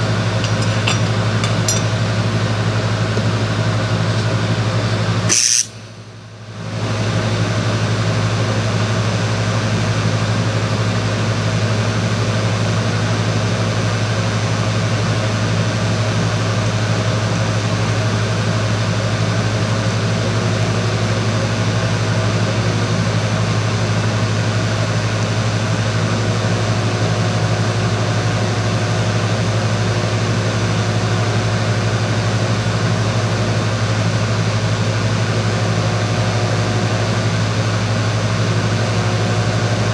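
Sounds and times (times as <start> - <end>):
arc welder buzzing and hissing: 5.2 - 6.0.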